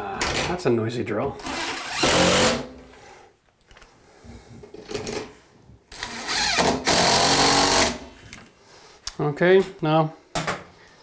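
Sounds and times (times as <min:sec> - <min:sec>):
cordless drill driving screws: 0:05.9 - 0:08.0.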